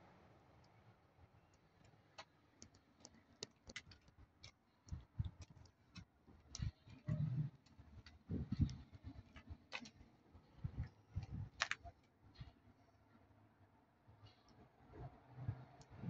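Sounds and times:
light clicks and ticks: 1.5 - 10.0.

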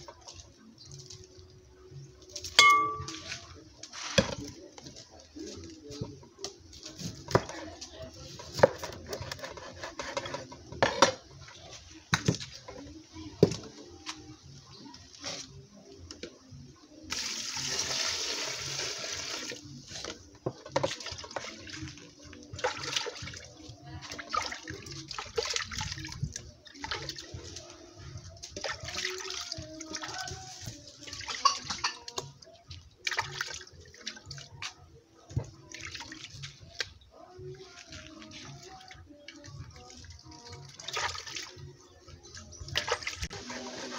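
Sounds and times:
water pouring into metal pot: 17.1 - 19.8.

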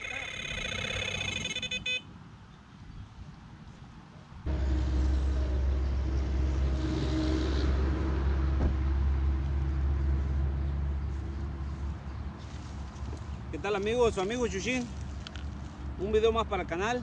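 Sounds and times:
engine idling: 4.5 - 7.1.

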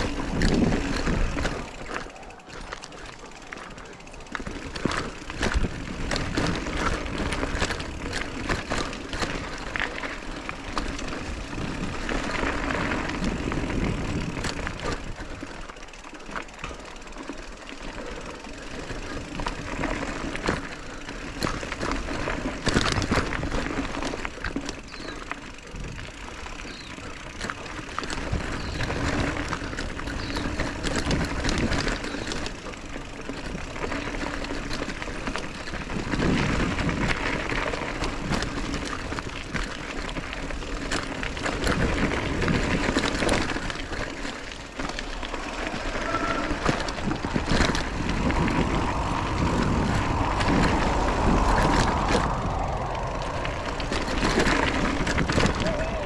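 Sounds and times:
wind rumble on microphone: 0.0 - 2.0, 4.4 - 15.4, 33.4 - 44.1, 44.7 - 56.0
bike rattling and clicking: 0.0 - 56.0
bike tyres on dirt: 0.0 - 56.0.

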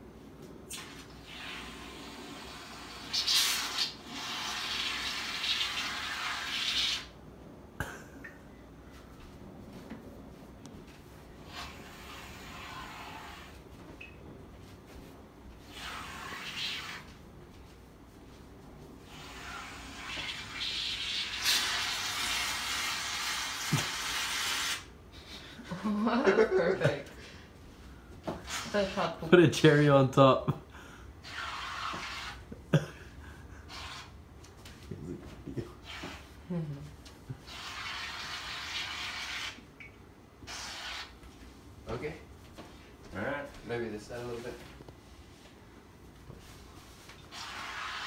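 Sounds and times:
aerosol can spraying: 19.1 - 24.9, 47.3 - 48.0.

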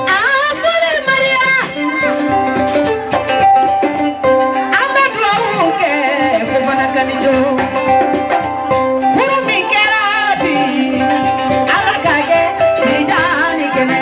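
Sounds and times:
instrumental accompaniment: 0.0 - 14.0
woman singing with vibrato: 4.7 - 8.2, 9.0 - 14.0.

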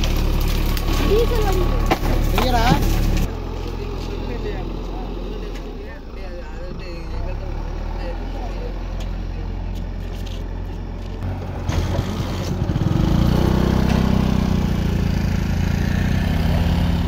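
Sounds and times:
engine running steadily: 0.0 - 17.0.

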